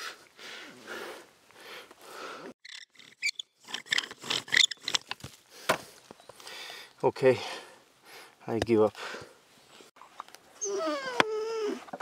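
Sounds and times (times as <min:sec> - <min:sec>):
bow drill spindle scraping and squeaking: 0:02.6 - 0:05.1.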